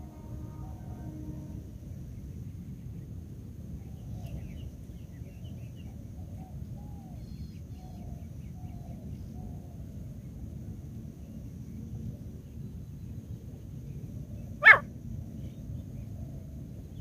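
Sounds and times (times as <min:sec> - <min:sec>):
partridge calling: 0:14.6 - 0:14.8.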